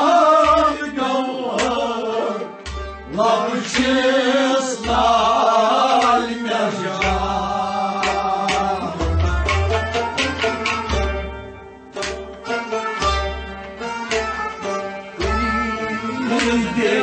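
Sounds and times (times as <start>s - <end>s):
man singing: 0.0s - 2.5s, 3.1s - 9.7s, 15.2s - 17.0s
musical accompaniment: 0.0s - 17.0s
drum beating: 2.6s - 17.0s.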